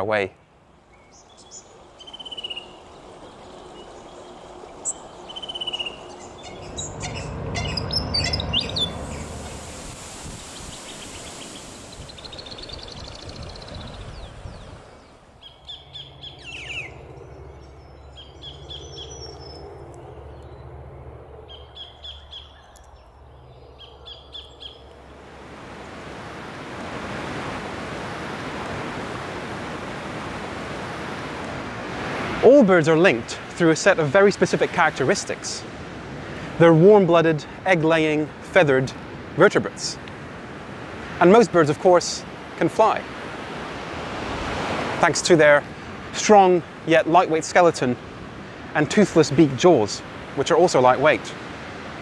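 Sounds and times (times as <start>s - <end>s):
mixed bird calls: 0.9s - 9.5s, 10.5s - 25.0s
surf hissing: 6.0s - 15.1s, 25.0s - 52.0s.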